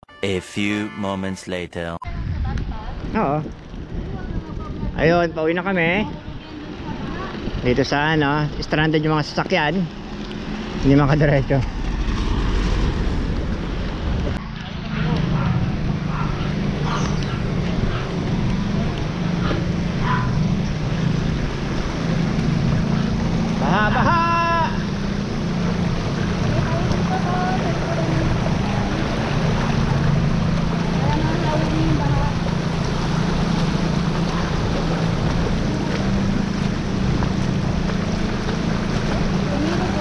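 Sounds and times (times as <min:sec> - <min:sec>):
wind rumble on microphone: 0:02.1 - 0:08.7
water splashing around bike wheels: 0:03.5 - 0:14.4, 0:15.2 - 0:40.0
tyres swishing through water: 0:24.7 - 0:40.0.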